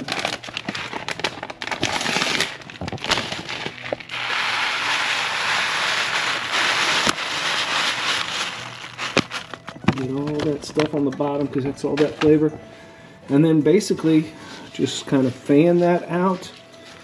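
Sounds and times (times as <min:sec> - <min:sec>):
packet crinkling: 0:00.0 - 0:11.0
dry grains pouring into a pan: 0:03.6 - 0:08.7.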